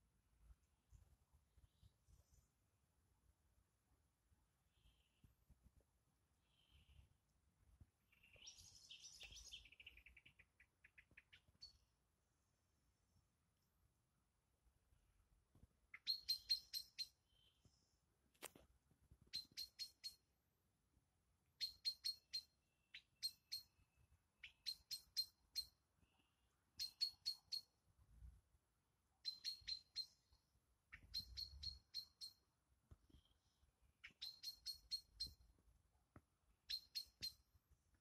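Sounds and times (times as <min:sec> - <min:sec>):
faint high animal chirps: 0:15.9 - 0:17.5, 0:19.3 - 0:20.2, 0:21.6 - 0:23.8, 0:24.4 - 0:25.8, 0:26.8 - 0:27.8, 0:29.2 - 0:32.4, 0:33.2 - 0:35.5, 0:36.6 - 0:37.5.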